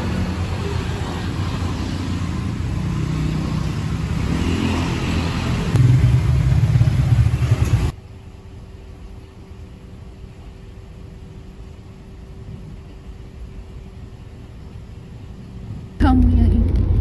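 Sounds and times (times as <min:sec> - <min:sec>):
motorbike and car engines passing: 0:00.0 - 0:08.0.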